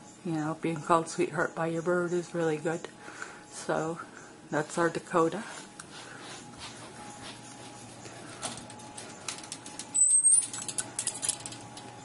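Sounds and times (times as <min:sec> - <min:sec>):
clicks and rustles: 0:08.3 - 0:12.0.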